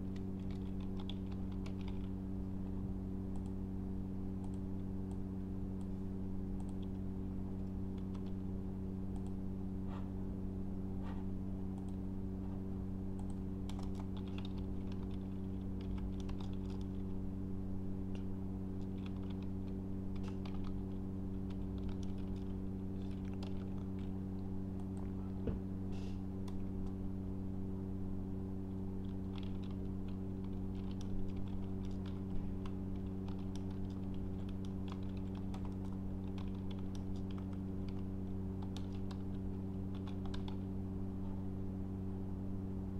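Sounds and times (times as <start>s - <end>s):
steady low hum: 0.0s - 42.9s
typing on a keyboard: 0.1s - 2.1s, 13.2s - 17.0s, 18.8s - 19.5s, 20.1s - 24.1s, 29.0s - 40.6s.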